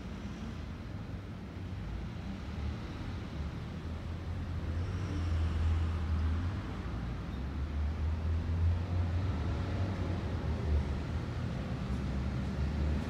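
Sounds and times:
distant road traffic rumble: 0:00.0 - 0:13.0.

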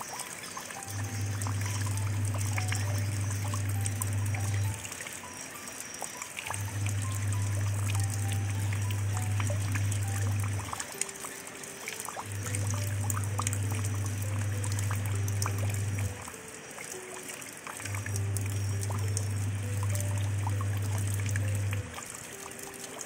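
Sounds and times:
rain pattering into water: 0:00.0 - 0:23.0
quiet melody of short notes: 0:06.5 - 0:11.4.

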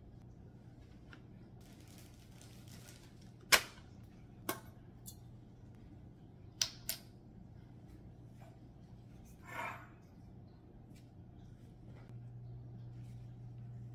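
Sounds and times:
bags rustling: 0:01.6 - 0:03.5.

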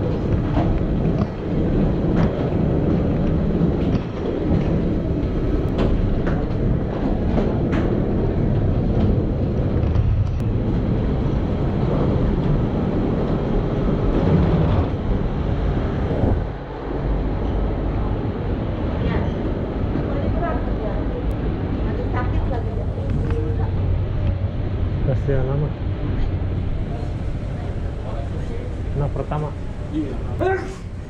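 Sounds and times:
wheeled suitcases rolling: 0:00.0 - 0:24.8.

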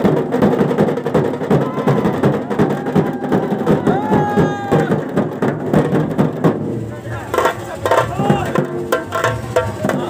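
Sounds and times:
drum band playing fast rhythm: 0:00.0 - 0:10.0.

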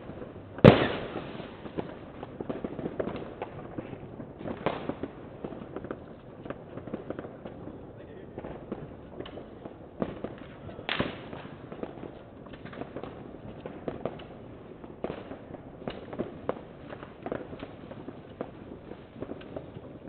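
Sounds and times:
fireworks and firecrackers banging: 0:00.0 - 0:20.0.

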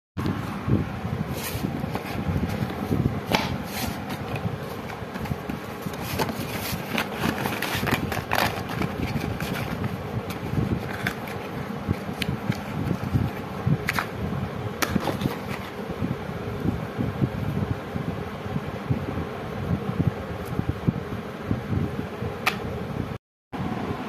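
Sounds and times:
fan-like background noise: 0:00.2 - 0:24.0
paper and cardboard rustling: 0:01.3 - 0:14.1, 0:14.8 - 0:15.8.

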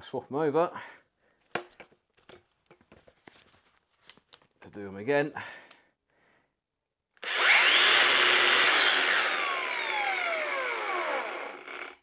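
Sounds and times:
angle grinder whining: 0:07.2 - 0:12.0.

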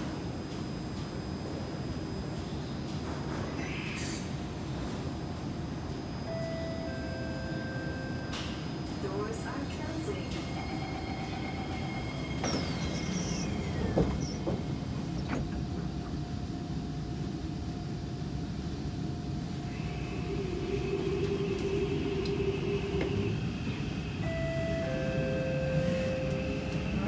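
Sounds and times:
train car rumble: 0:00.0 - 0:27.0
train doors closing: 0:06.3 - 0:16.5, 0:19.8 - 0:27.0.

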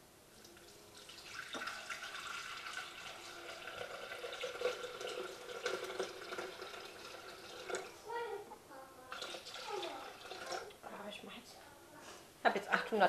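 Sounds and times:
water pouring into steel bowl: 0:00.5 - 0:08.0, 0:09.1 - 0:10.8.

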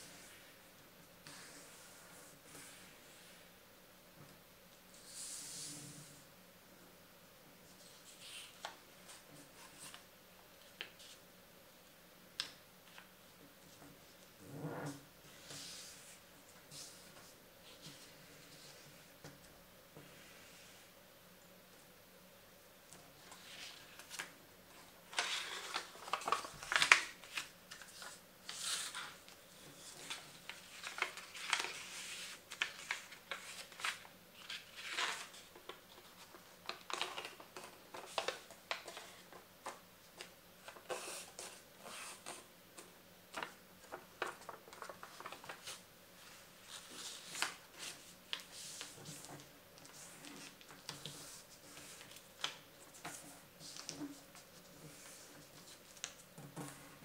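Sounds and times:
paper rustling and crinkling: 0:22.9 - 0:57.0.

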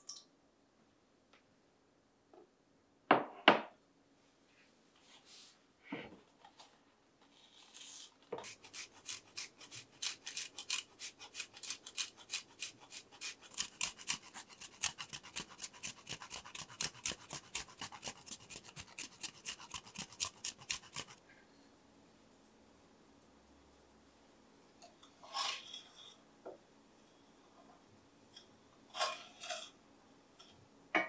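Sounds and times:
cheese scraping on metal grater: 0:07.3 - 0:21.2, 0:28.9 - 0:29.8.

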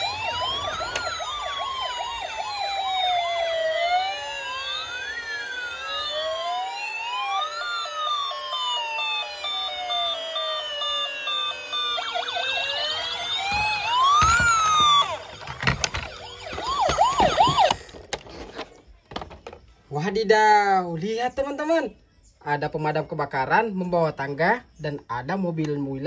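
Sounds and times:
electronic toy sirens wailing: 0:00.0 - 0:18.2.

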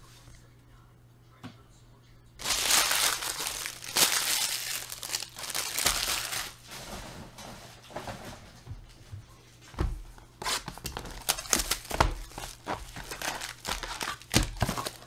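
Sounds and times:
foil wrappers crinkling: 0:02.4 - 0:07.2, 0:10.4 - 0:15.0.

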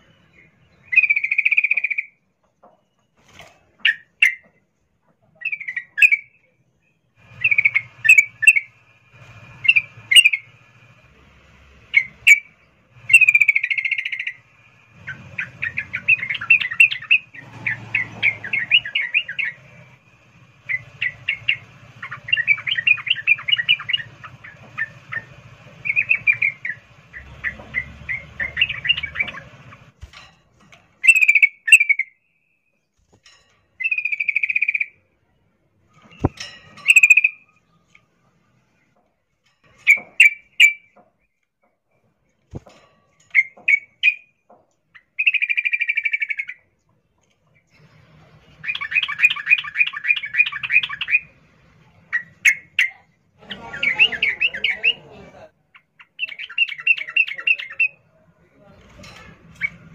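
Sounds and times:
bulbul calling: 0:00.3 - 0:02.2, 0:07.3 - 0:08.8, 0:09.6 - 0:10.6, 0:11.9 - 0:14.4, 0:15.0 - 0:20.0, 0:20.6 - 0:29.9, 0:31.0 - 0:32.2, 0:33.8 - 0:35.0, 0:36.1 - 0:37.5, 0:45.0 - 0:46.7, 0:48.6 - 0:51.3, 0:55.7 - 0:58.0.

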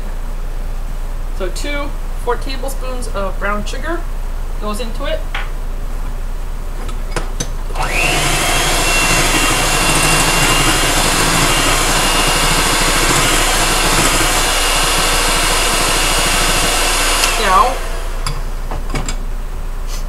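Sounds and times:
electric hand mixer whine: 0:07.7 - 0:18.6
mixer clicks: 0:07.8 - 0:18.4
beaters churning in bowl: 0:07.8 - 0:18.5.

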